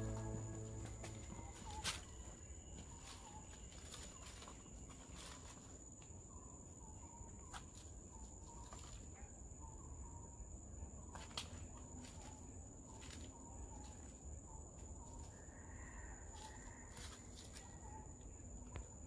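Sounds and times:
high-pitched insect drone: 0.0 - 4.6
faint bird chirps: 0.0 - 19.0.

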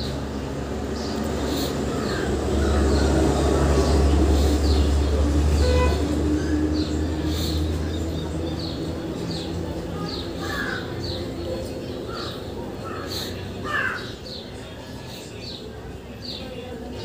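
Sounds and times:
birds cawing: 1.0 - 4.9, 10.0 - 14.4.

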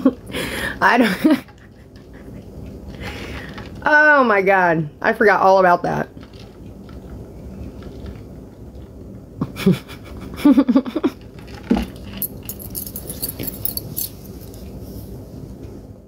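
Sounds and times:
woman laughing hard: 9.4 - 11.2.

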